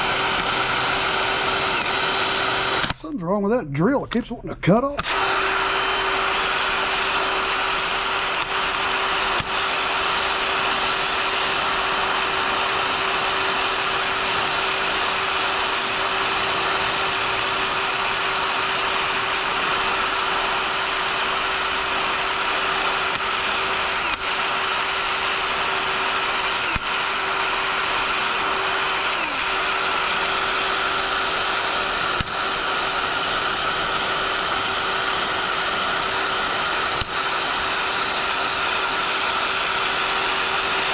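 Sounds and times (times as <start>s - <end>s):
drill with wire brush scrubbing metal: 0.0s - 3.1s, 5.0s - 40.9s.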